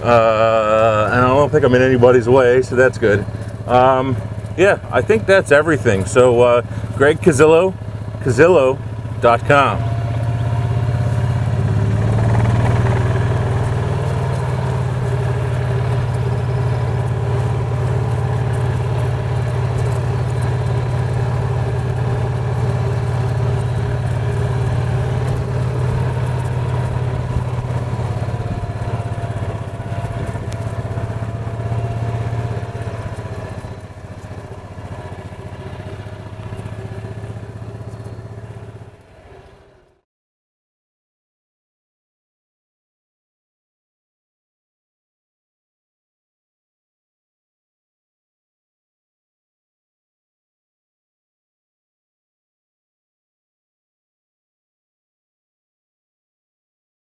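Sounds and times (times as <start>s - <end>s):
golf cart motor drone: 0.0s - 40.0s.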